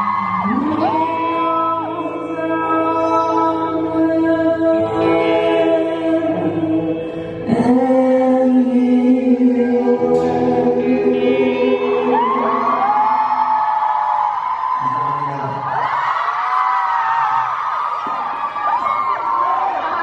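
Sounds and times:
person singing long notes: 0.0 - 13.6
electric guitar: 0.0 - 16.7
drums: 10.0 - 16.1.

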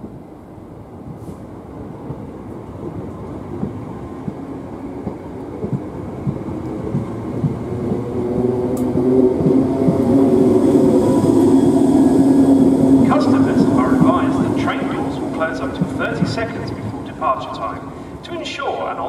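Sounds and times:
traction motor hum: 3.5 - 18.2.

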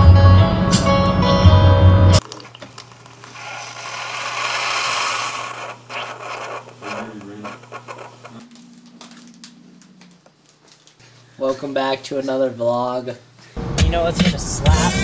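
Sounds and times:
coffee streaming into mug: 2.2 - 8.1
coffee maker hum: 2.2 - 8.5
coffee maker sputtering: 2.2 - 8.5.

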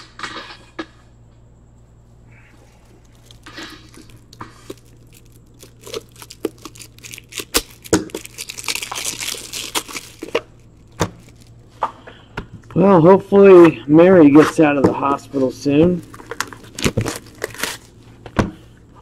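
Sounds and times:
plastic wrapping crinkling and tearing: 2.6 - 11.6, 15.9 - 18.0.

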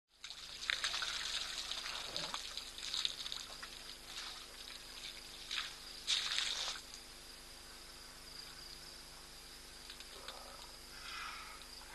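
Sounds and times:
water splashing and trickling: 0.1 - 7.1.

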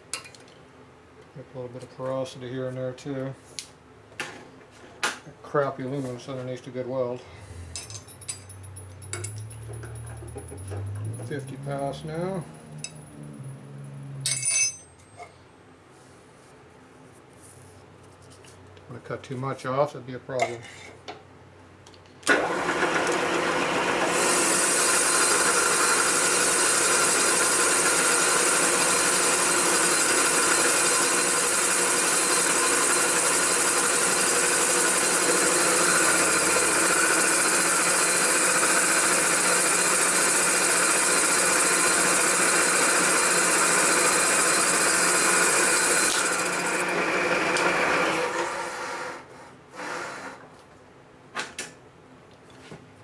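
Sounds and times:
machine winding down: 8.6 - 14.3, 22.3 - 50.3
milling machine cutting metal: 22.3 - 48.5.

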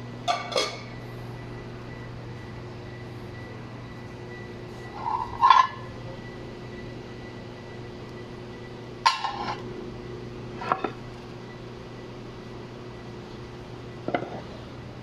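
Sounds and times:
cast iron pans clanking: 0.3 - 0.9, 5.0 - 5.8, 9.0 - 9.6, 14.1 - 14.4.

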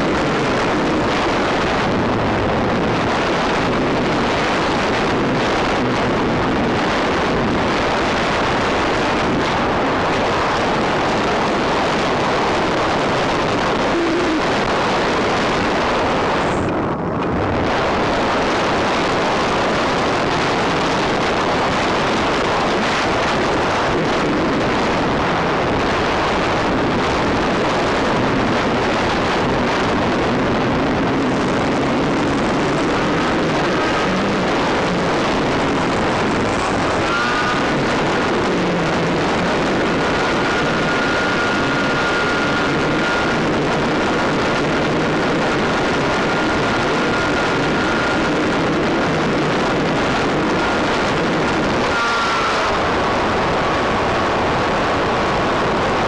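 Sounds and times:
airflow hissing over microphone: 0.0 - 56.0.

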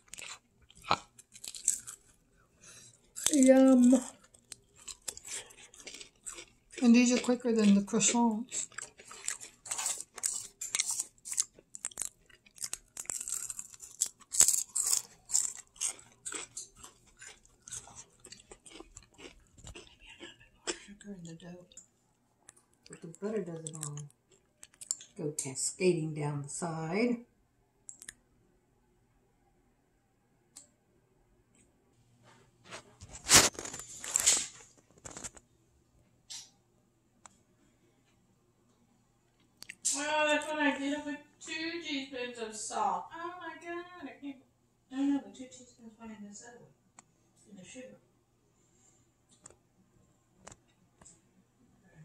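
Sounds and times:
person crunching pastry: 0.0 - 21.1, 21.7 - 25.1, 33.0 - 35.5.

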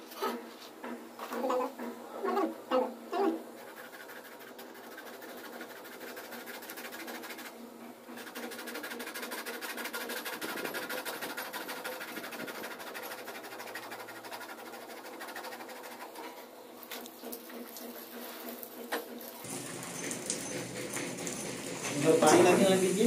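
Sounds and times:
hacksaw sawing plastic pipe: 3.6 - 7.6, 8.2 - 16.4.

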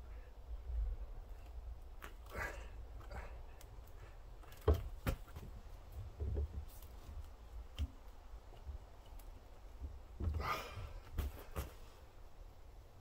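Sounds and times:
dull thumps: 4.4 - 8.0, 9.7 - 11.9.

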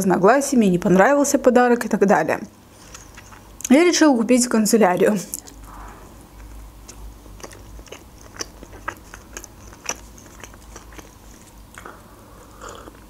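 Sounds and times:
person chewing food: 2.8 - 3.7, 5.4 - 13.0.

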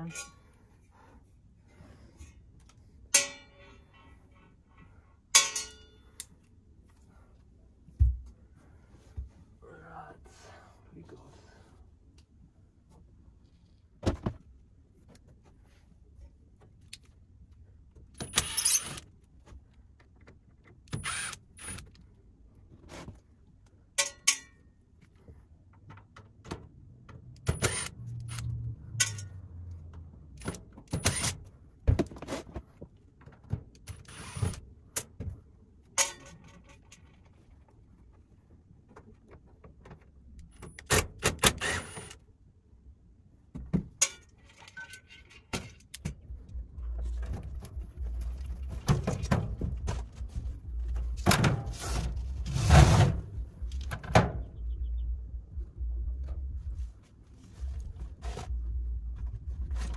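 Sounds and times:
tools clinking on sheet metal: 3.1 - 4.1, 5.4 - 6.0, 24.0 - 24.7.

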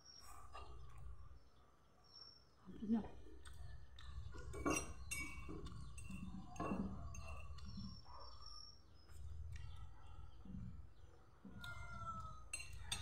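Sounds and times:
chewing and mouth smacks: 3.2 - 6.5, 9.1 - 10.2
light clinks: 3.4 - 13.0.

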